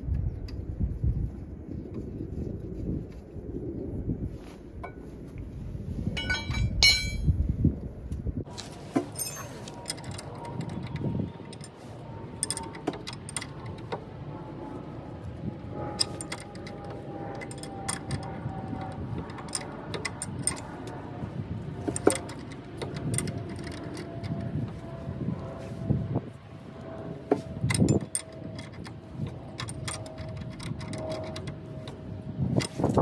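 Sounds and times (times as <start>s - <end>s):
steady low rumble: 0.0s - 33.0s
metallic clinks of wrench on bolts: 6.2s - 7.2s, 12.4s - 13.9s, 16.0s - 16.8s, 17.4s - 20.9s, 21.9s - 24.4s, 27.7s - 32.0s.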